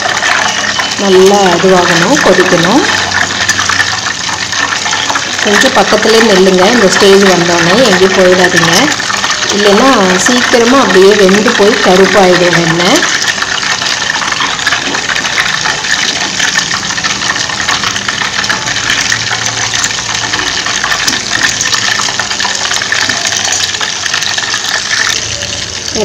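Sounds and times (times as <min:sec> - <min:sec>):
butter sizzling in a pot: 0:00.0 - 0:26.0.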